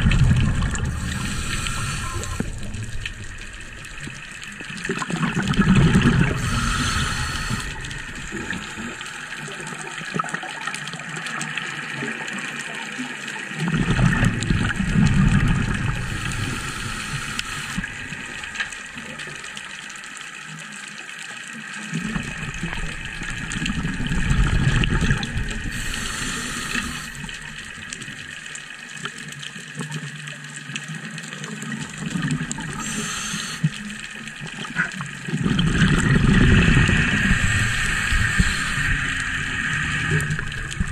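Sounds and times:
bubbling exhalation: 0.0 - 9.7, 22.0 - 27.9, 32.0 - 40.9
diver breathing through regulator: 0.4 - 3.0, 5.6 - 9.4, 15.9 - 18.4, 25.6 - 27.7, 32.7 - 34.1, 35.8 - 40.9.

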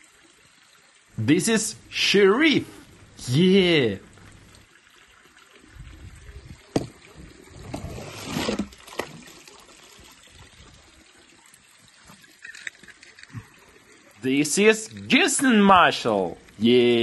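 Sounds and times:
water splashing on a plastic slide: 6.0 - 11.1
toy car sliding: 7.6 - 9.0.

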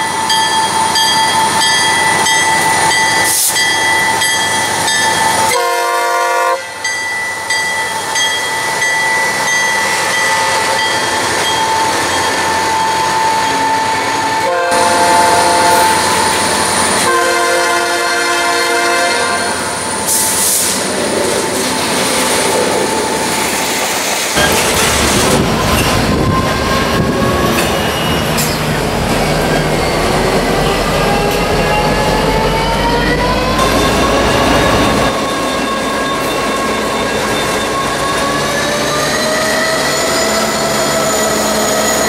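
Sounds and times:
locomotive horn blasts: 5.5 - 6.8, 14.3 - 16.2, 17.0 - 20.2
train cars clattering on rails: 20.0 - 32.2.

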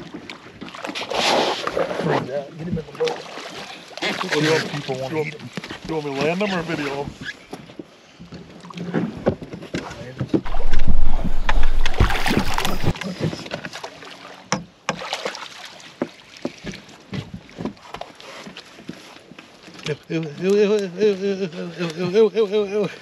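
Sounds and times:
loud rushing rumble: 10.5 - 12.9.

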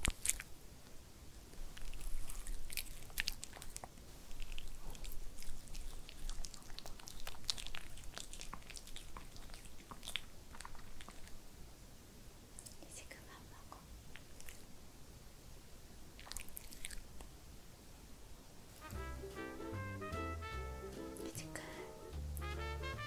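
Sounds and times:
dog chewing treat: 0.0 - 0.5, 1.7 - 11.4, 16.2 - 17.1.

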